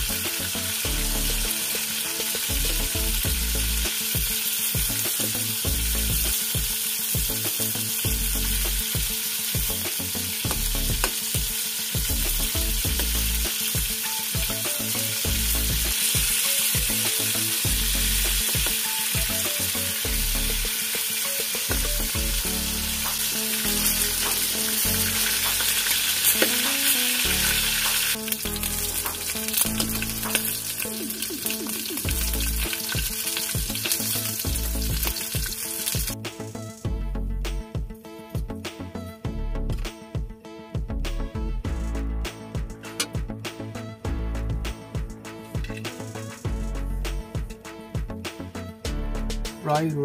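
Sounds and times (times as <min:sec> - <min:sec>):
meat sizzling in hot oil: 0:00.0 - 0:36.2.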